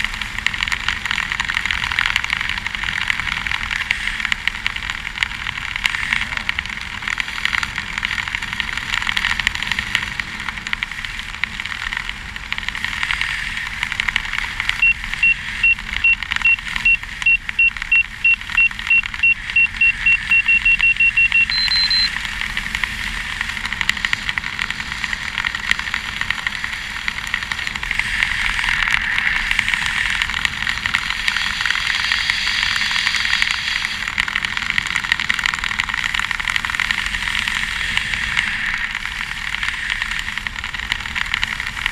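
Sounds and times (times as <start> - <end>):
altimeter beeps: 14.8 - 22.1.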